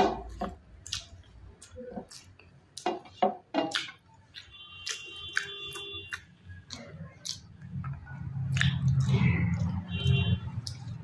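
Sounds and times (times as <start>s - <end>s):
wet chewing: 0.2s - 11.0s
mouth clicks: 3.7s - 11.0s.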